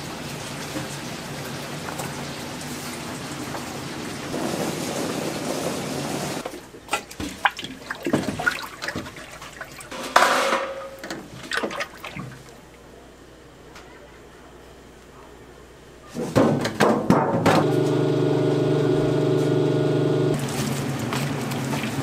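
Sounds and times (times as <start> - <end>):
kitchen utensils and dishes clattering: 8.0 - 11.8
rushing water: 20.4 - 22.0.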